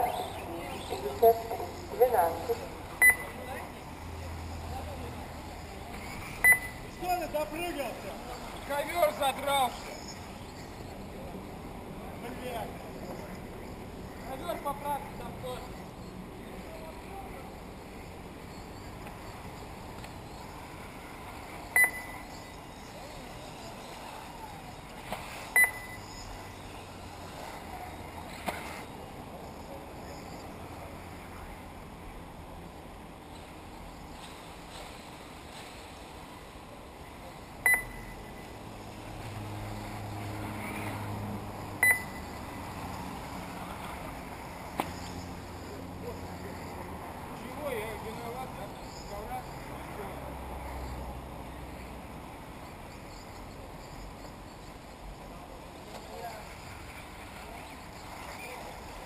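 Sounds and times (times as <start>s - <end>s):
outdoor background hiss: 0.0s - 59.0s
short high electronic beeps: 3.0s - 3.4s, 6.4s - 7.0s, 21.7s - 22.6s, 25.6s - 26.4s, 37.6s - 38.4s, 41.8s - 42.4s
high ringing ping: 25.6s - 26.3s, 37.6s - 38.4s, 41.8s - 42.4s.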